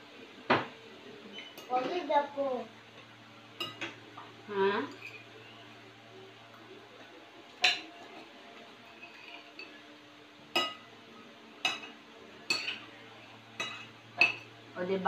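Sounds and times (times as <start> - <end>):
spoons clinking on plates: 3.0 - 4.3, 4.9 - 5.3, 7.6 - 9.8, 10.5 - 10.8, 11.6 - 12.9, 13.6 - 14.5.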